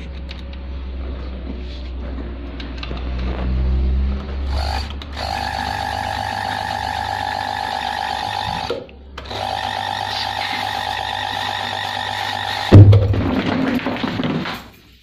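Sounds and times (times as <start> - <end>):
sewing machine motor hum: 4.5 - 12.8.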